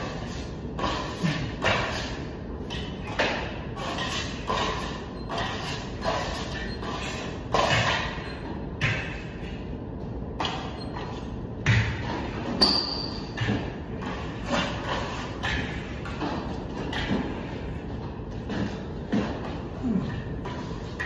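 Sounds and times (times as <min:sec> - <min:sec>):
metallic ping: 0:12.6 - 0:13.3.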